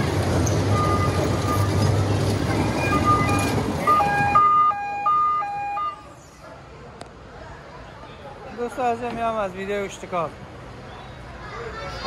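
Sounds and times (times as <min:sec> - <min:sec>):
ride machinery rumble and hum: 0:00.0 - 0:06.3
electronic two-tone siren: 0:02.8 - 0:06.1.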